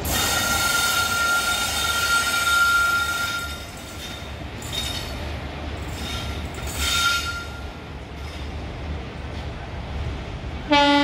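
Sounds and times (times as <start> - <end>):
wheel squeals against rails: 0.1 - 8.5.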